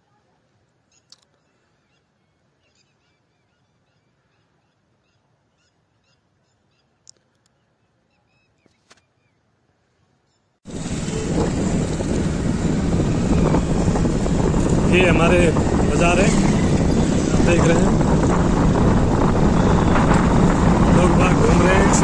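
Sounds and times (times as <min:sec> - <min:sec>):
faint bird chirps: 0:00.0 - 0:10.6.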